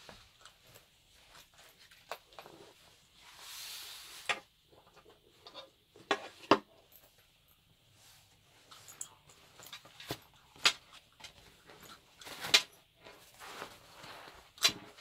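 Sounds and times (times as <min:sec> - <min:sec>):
rubber and canvas rustling: 0:09.4 - 0:15.0.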